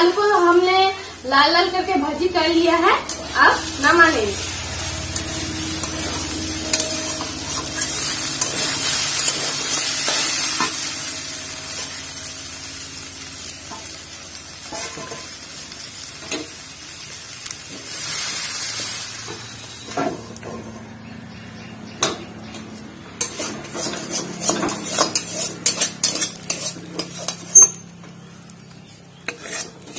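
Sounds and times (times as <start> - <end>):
food sizzling in hot oil: 0.0 - 20.4, 23.2 - 29.9
spatula scraping a pan: 2.7 - 12.2, 14.6 - 15.4, 23.2 - 29.9.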